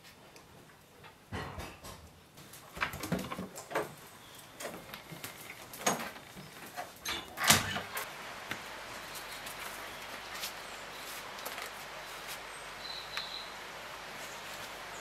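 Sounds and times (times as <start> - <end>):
steady background hiss: 0.0 - 15.0
wooden door opening and shutting: 5.8 - 8.0.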